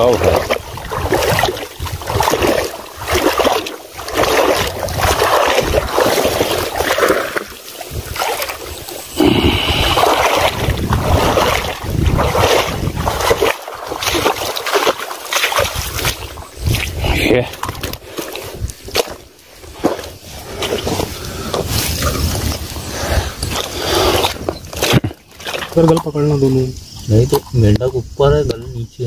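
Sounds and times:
wind buffeting microphone: 0.0 - 14.6, 15.5 - 25.1
fish thrashing and splashing: 0.0 - 26.3.

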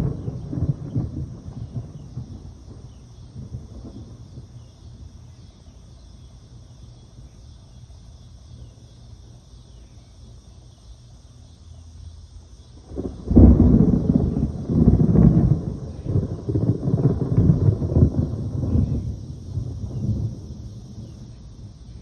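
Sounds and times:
thunder rumbling: 0.0 - 5.7, 12.8 - 22.0.

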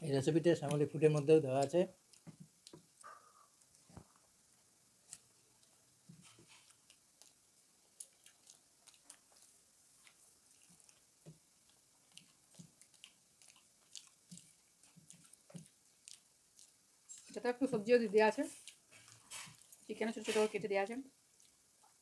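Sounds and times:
chewing soft food: 0.6 - 17.4, 18.4 - 19.9, 21.1 - 22.0
mouth clicks: 1.2 - 3.8.

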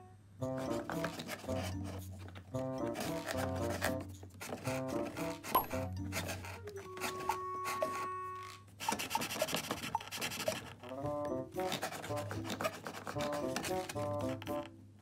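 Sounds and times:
background music of stepped notes: 0.4 - 14.8
cardboard and wood scraping: 0.6 - 14.7.

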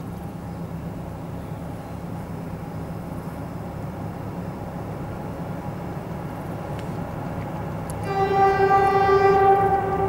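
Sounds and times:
locomotive engine rumble: 0.0 - 10.0
train horn: 8.0 - 10.0.

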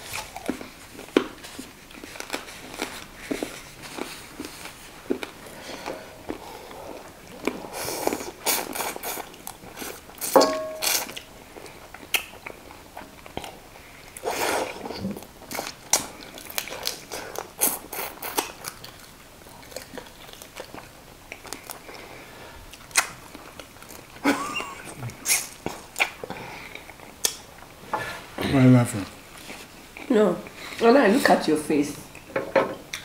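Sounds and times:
chewing and crunching bones: 0.0 - 14.2, 15.2 - 24.2.

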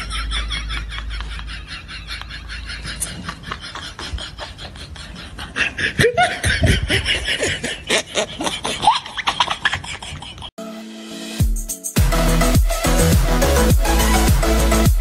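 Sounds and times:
laughter in short bursts: 0.0 - 10.5.

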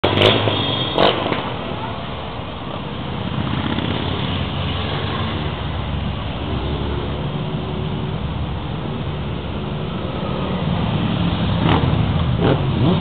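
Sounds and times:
motorcycles riding past: 3.2 - 13.0.

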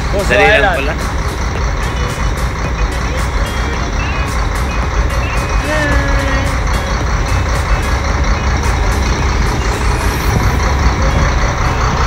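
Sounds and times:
boat engine rumbling: 0.0 - 12.0.

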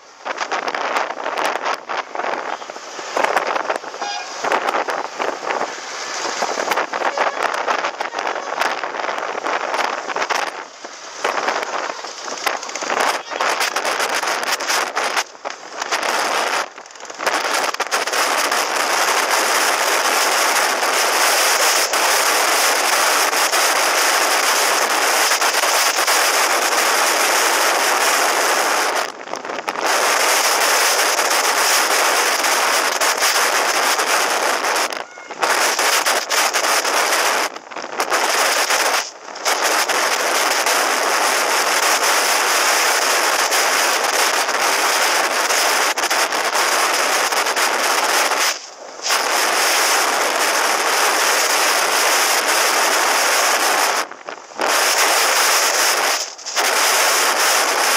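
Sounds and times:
wind buffeting microphone: 0.1 - 57.9.

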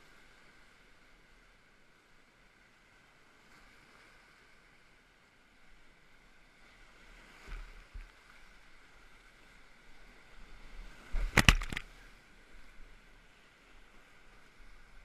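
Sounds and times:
water splashing hits: 11.1 - 12.0.

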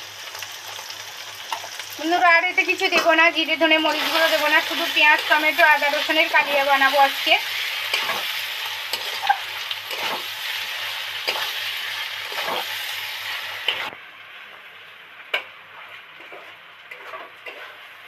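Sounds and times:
food sizzling in oil: 0.0 - 18.0
metal spatula scraping pan: 3.9 - 13.9, 15.7 - 18.0.

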